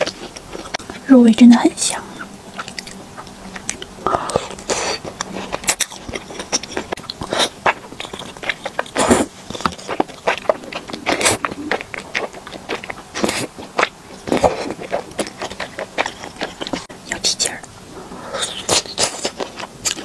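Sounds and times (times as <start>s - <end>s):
wet smacking chewing: 0.0s - 1.0s, 2.2s - 16.9s, 18.3s - 20.0s
person slurping noodles: 8.8s - 11.9s.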